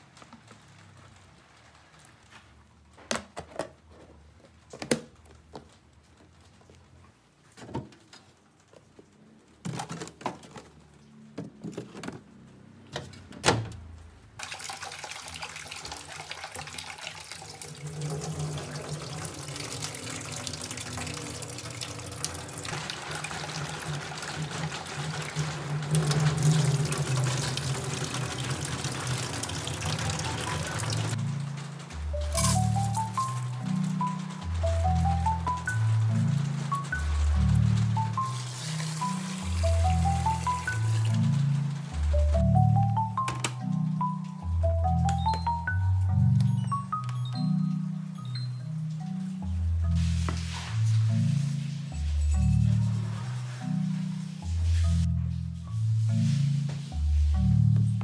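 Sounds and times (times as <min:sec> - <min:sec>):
rice washed in bowl: 0:14.4 - 0:31.2
water pouring off: 0:14.4 - 0:42.3.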